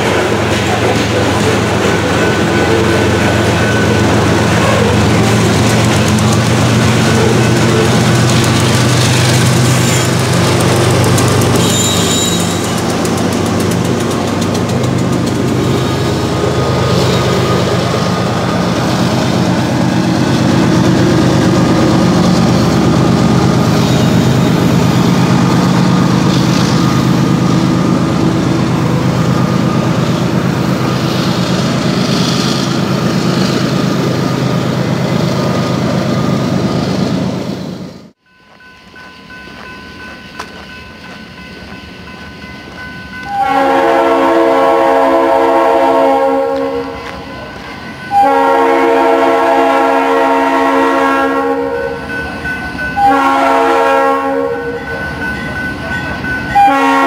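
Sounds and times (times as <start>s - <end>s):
locomotive engine low drone: 0.0s - 43.4s.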